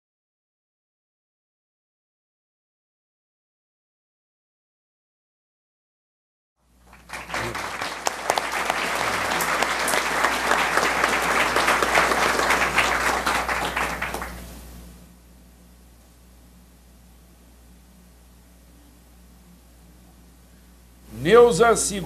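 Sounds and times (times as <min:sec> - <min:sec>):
audience applause: 0:06.8 - 0:14.5.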